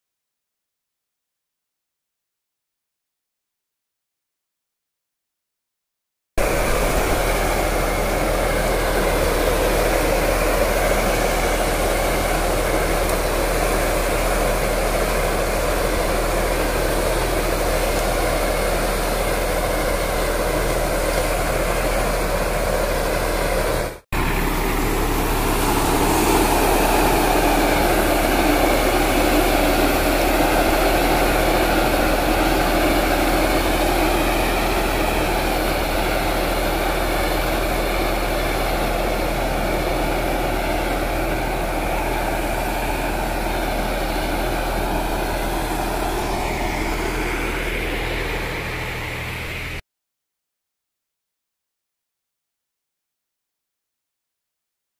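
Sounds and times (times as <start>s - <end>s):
broad hiss: 6.4s - 49.7s
crop sprayer engine running: 6.4s - 49.8s.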